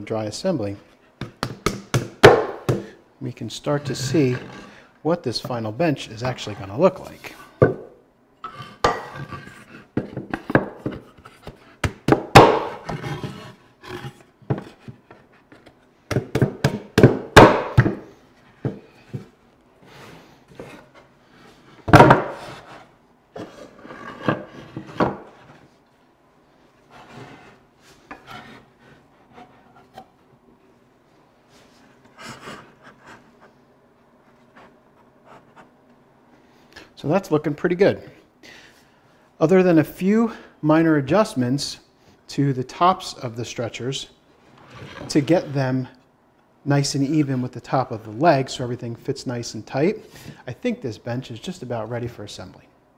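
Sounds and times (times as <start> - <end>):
wood-on-wood knocks and clunks: 1.2 - 2.9, 7.6 - 8.0, 10.0 - 13.0, 14.4 - 19.3, 21.8 - 22.6, 24.2 - 25.6
wood rubbing: 26.9 - 30.1.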